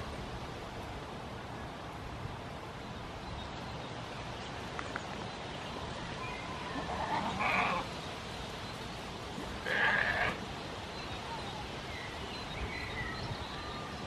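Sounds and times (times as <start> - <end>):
outdoor background noise: 0.0 - 14.0
goat bleating: 9.6 - 10.4.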